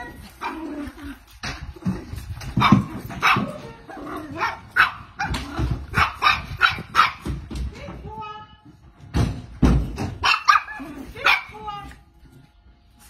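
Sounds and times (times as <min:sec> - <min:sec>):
dogs barking: 0:00.0 - 0:01.0, 0:02.4 - 0:07.5, 0:10.0 - 0:11.7.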